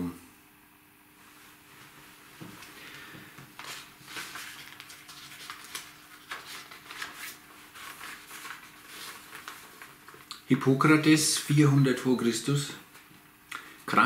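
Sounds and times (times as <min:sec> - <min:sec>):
faint steady hum: 0:00.0 - 0:14.0
rustling and handling noises: 0:01.2 - 0:10.6.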